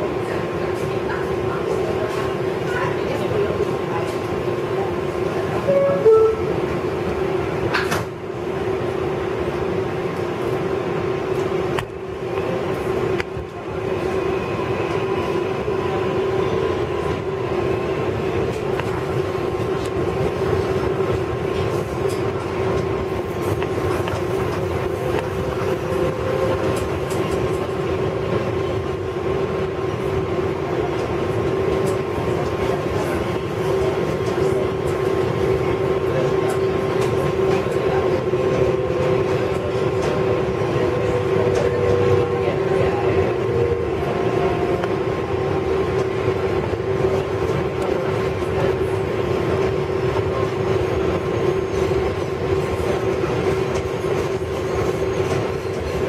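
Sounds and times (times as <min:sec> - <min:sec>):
train wheels rumbling on rail: 0:00.0 - 0:56.0
train motor hum and whine: 0:04.8 - 0:07.9, 0:29.9 - 0:56.0.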